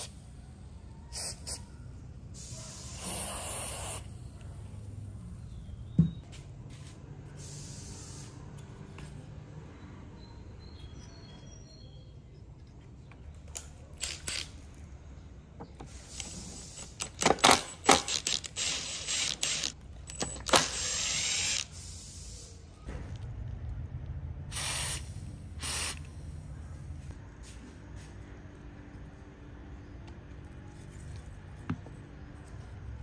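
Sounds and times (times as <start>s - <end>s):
metal parts clicking and clanking: 16.1s - 20.8s
power driver whirring: 17.0s - 21.8s.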